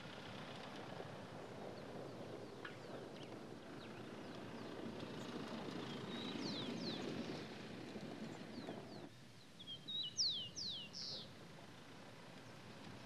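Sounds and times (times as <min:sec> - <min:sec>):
truck driving past on dirt: 0:00.0 - 0:09.1
small birds chirping: 0:01.4 - 0:11.4.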